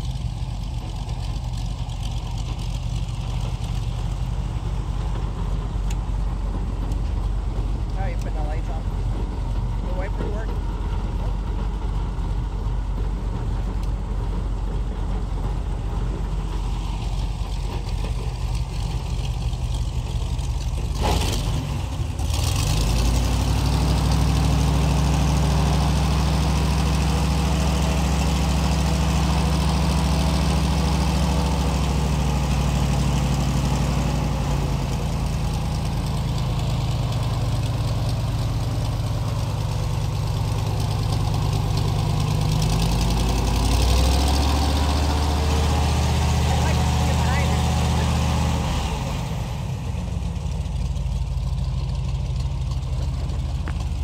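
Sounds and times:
airboat engine revving: 16.0 - 54.0.

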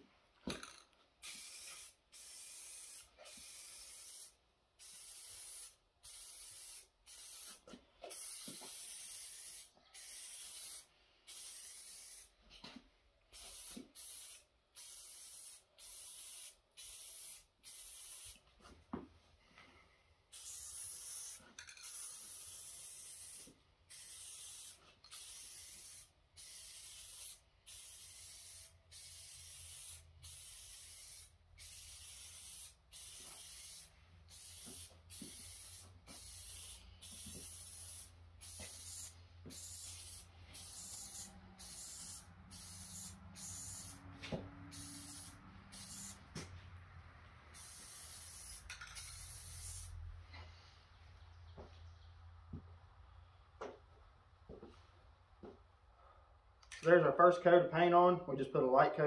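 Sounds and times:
spray paint can hissing: 0.5 - 12.3, 13.3 - 18.4, 20.3 - 44.0, 44.7 - 46.5, 47.5 - 50.0.

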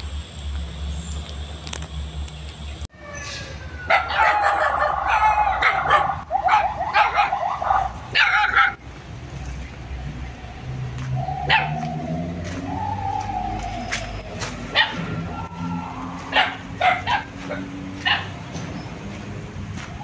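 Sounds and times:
dog barking and yelping: 3.9 - 8.8, 11.4 - 12.1, 14.6 - 18.5.

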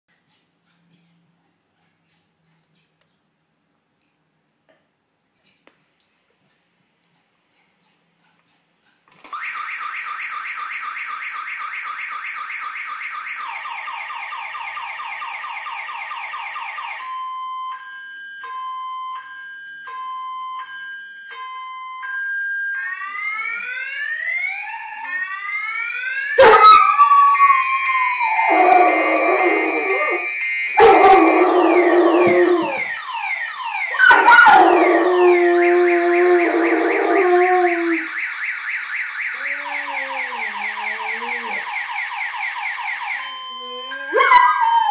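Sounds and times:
car alarm warbling: 9.4 - 44.9
dog howling: 26.4 - 32.9, 33.9 - 38.0, 39.3 - 41.7, 43.7 - 44.9.

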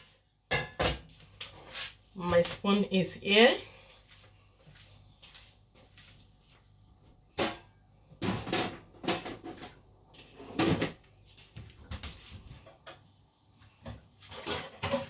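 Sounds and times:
kitchen knocks and bangs: 0.5 - 1.1, 7.3 - 9.8.

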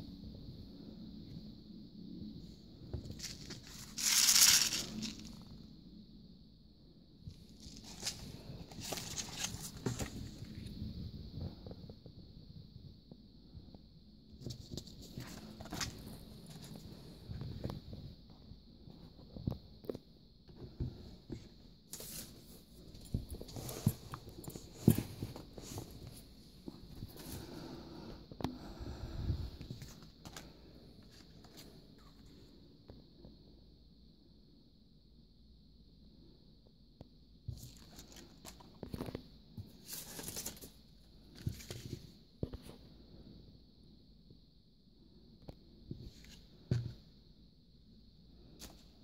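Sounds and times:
faint steady hiss: 0.0 - 49.0
paper rustling: 3.1 - 5.4, 7.6 - 10.5, 39.8 - 40.8.

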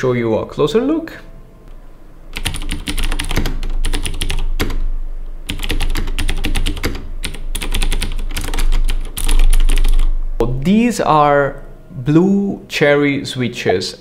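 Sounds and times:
typing on clicky mechanical keyboard: 2.4 - 4.8, 5.5 - 10.1.

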